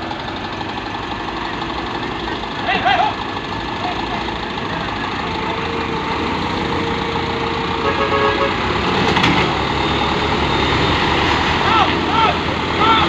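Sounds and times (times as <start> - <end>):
diesel truck engines running: 0.0 - 13.0
vehicle horn toot: 7.8 - 8.7.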